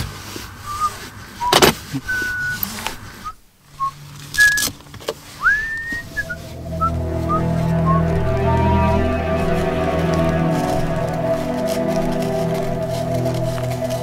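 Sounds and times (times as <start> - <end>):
short high whistling chirps: 5.4 - 11.6.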